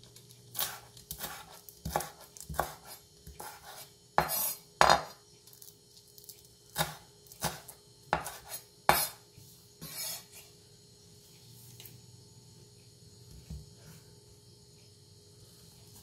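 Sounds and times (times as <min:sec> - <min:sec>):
knife chopping on wooden board: 0:00.6 - 0:05.2, 0:06.8 - 0:09.2.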